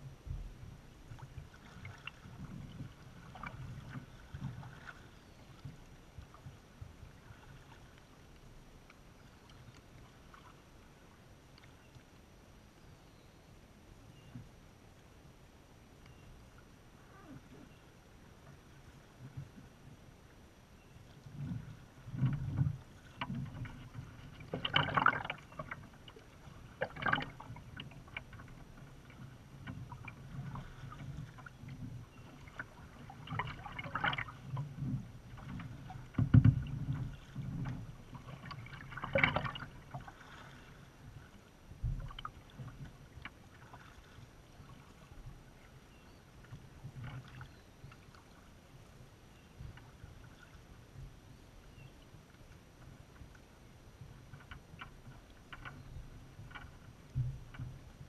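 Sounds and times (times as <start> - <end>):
kayak paddle strokes in water: 0.0 - 12.2, 16.0 - 20.4, 21.0 - 58.0
dull low thump: 0.1 - 0.8, 36.1 - 37.9, 41.8 - 42.2, 57.1 - 57.8.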